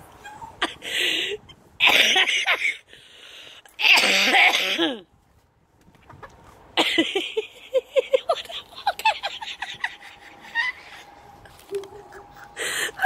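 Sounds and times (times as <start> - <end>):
high-pitched breathless laughter: 0.1 - 2.9, 6.8 - 13.0
wheezy gasps: 12.5 - 13.0.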